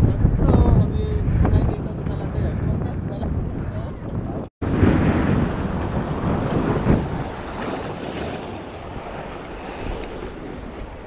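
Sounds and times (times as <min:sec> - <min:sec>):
wind buffeting microphone: 0:00.0 - 0:11.0
sea waves breaking on rocks: 0:04.6 - 0:11.0.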